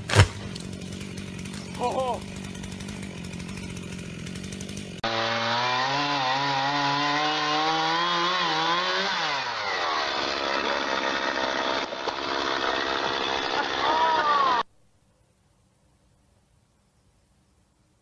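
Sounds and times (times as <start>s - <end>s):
chainsaw cutting log: 0.0s - 14.7s.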